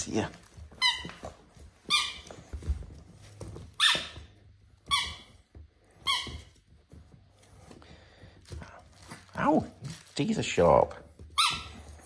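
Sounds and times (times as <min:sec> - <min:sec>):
squeaky dog toy squeaks: 0:00.7 - 0:02.4, 0:03.7 - 0:06.6, 0:11.3 - 0:12.0.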